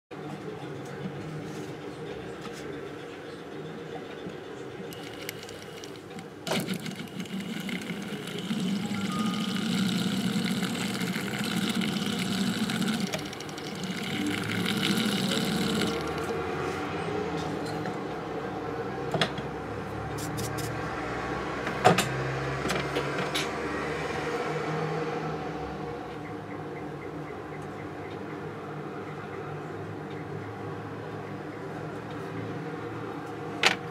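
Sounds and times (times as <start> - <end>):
steady mechanical hum: 0.1 - 23.6
fast even rattle: 4.9 - 16.3
small machine humming: 4.9 - 16.4.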